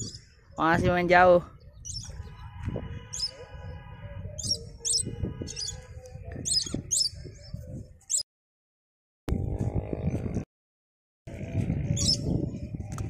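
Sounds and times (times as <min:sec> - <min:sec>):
short high bird chirps: 0:01.7 - 0:02.2, 0:03.1 - 0:03.4, 0:04.4 - 0:05.8, 0:06.4 - 0:07.5.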